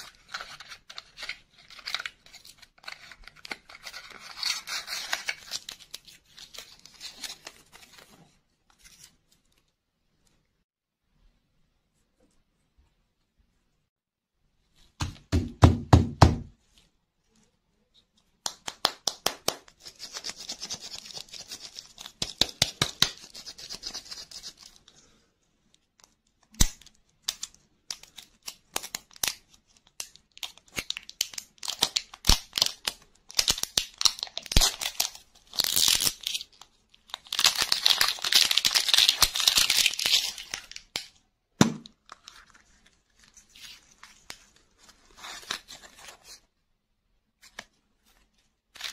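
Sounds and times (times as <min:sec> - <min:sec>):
plastic wrap crinkling: 0:30.4 - 0:41.0.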